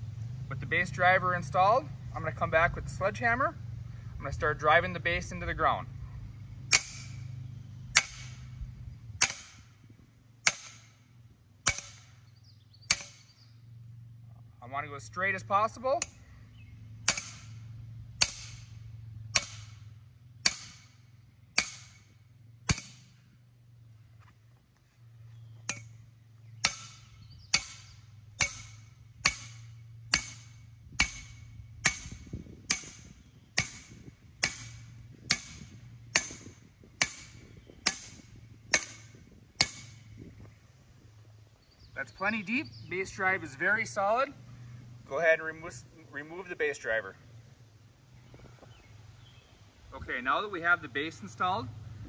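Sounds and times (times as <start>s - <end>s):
sledgehammer striking steel: 6.7s - 7.3s, 7.9s - 8.6s, 9.2s - 9.8s, 10.4s - 12.2s, 12.9s - 13.3s, 17.0s - 23.2s, 25.6s - 26.0s, 26.6s - 40.1s.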